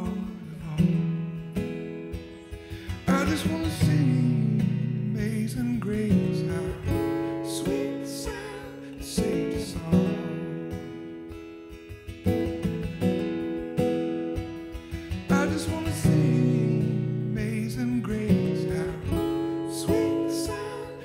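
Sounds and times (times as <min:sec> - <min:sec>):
man singing: 0:00.0 - 0:01.5, 0:02.9 - 0:11.0, 0:15.2 - 0:21.0
acoustic guitar strumming: 0:00.0 - 0:21.0.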